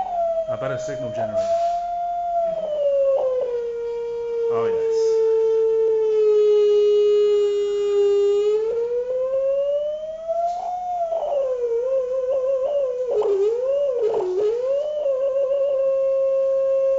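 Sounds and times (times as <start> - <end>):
loudspeaker tone with overtones: 0.0 - 3.6, 4.4 - 5.3, 10.2 - 16.2.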